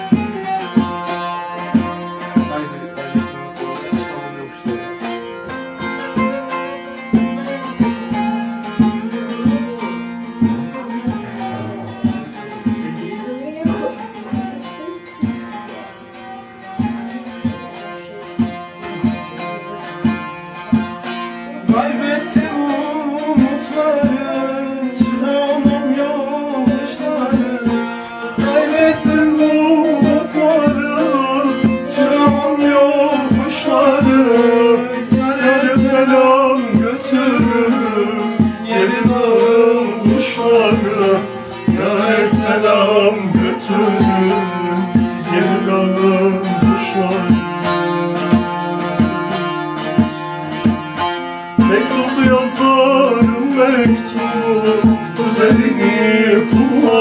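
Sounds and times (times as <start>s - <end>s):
long-necked lute strummed: 0.0s - 57.0s
man singing folk song: 0.0s - 57.0s.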